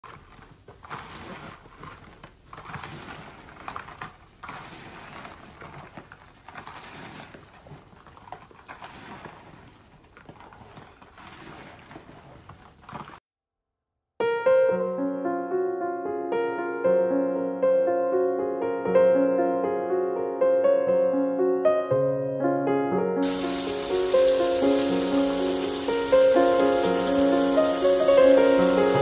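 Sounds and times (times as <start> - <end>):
fruit rustling in plastic basin: 0.0 - 13.2
piano music: 14.2 - 29.0.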